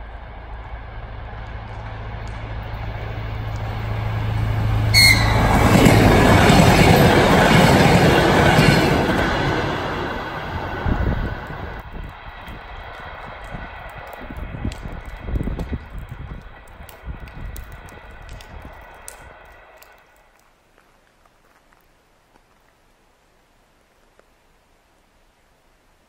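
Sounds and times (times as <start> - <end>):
diesel train engine droning: 0.0 - 19.9
train wheels rolling: 0.0 - 20.4.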